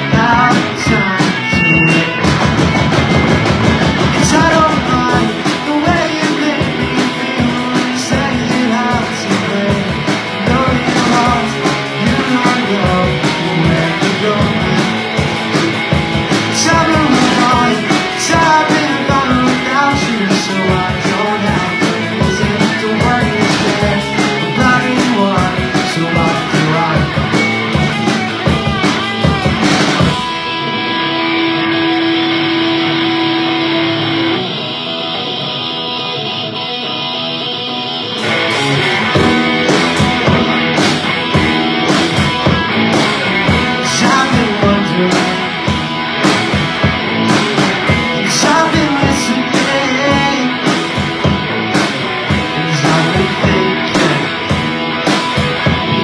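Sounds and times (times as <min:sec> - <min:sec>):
person singing: 0:00.0 - 0:02.4, 0:04.1 - 0:15.3, 0:16.3 - 0:31.9, 0:42.1 - 0:46.4, 0:47.1 - 0:51.3, 0:52.0 - 0:54.6
rock band playing: 0:00.0 - 0:56.0.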